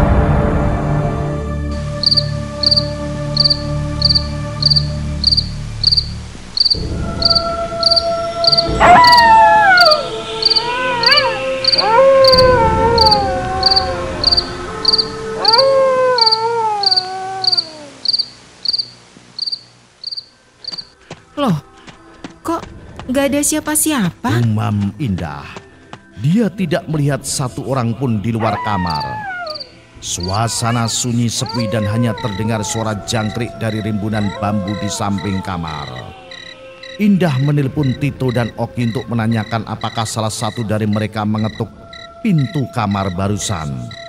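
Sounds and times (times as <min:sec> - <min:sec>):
dark music drone: 0:00.0 - 0:16.4, 0:28.4 - 0:44.0
crickets chirping: 0:01.8 - 0:22.9, 0:28.4 - 0:44.0
long falling howls: 0:06.8 - 0:18.0, 0:28.4 - 0:36.9.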